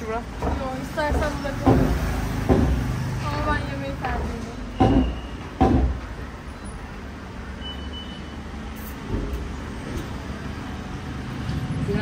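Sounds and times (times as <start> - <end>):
road traffic rumble: 0.0 - 12.0
short high beeps: 7.6 - 8.4.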